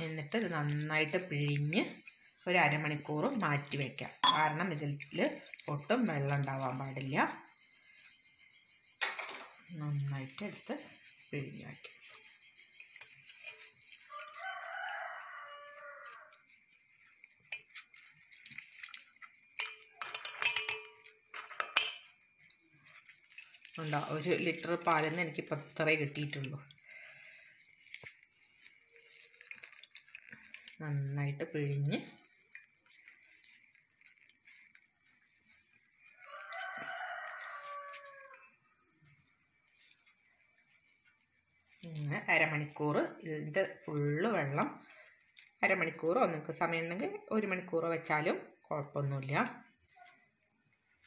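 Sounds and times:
wet cloth squeezed over strainer: 0:04.8 - 0:07.0, 0:11.9 - 0:19.5, 0:22.4 - 0:47.3.

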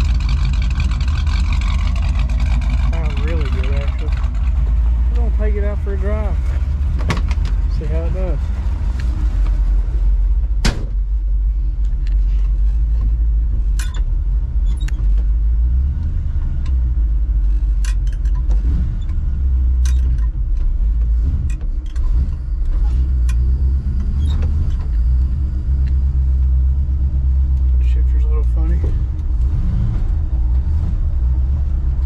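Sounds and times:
pickup engine idling: 0:00.0 - 0:14.6
sharp knock: 0:10.6 - 0:11.0.

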